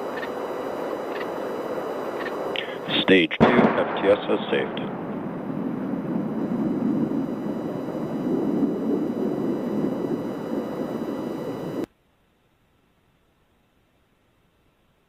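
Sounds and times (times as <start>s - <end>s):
distant rocket engines rumbling: 0.0s - 11.9s.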